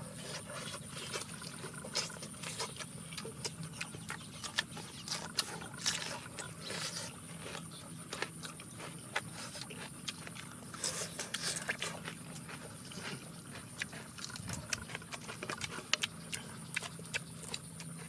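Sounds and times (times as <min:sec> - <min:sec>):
people chewing and lip-smacking: 0:00.0 - 0:18.0.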